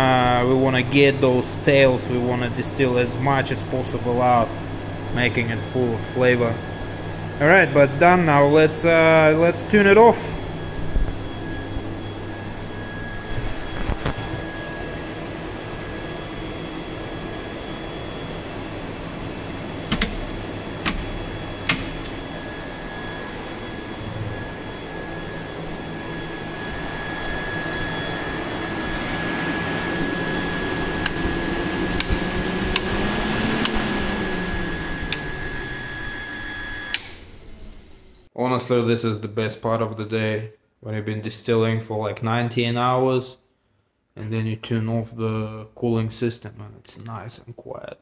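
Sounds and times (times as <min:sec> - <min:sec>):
fans and pump humming with whine: 0:00.0 - 0:38.3
fans spinning down: 0:00.0 - 0:38.3
sharp clicks: 0:19.9 - 0:20.2, 0:20.8 - 0:22.2.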